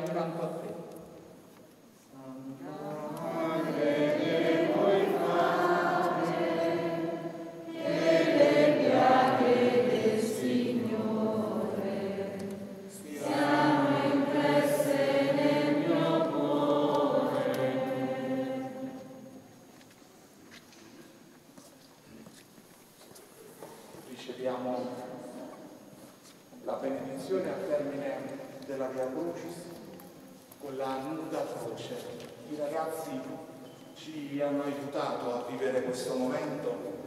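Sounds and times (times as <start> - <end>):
choir singing a hymn: 2.3 - 19.7.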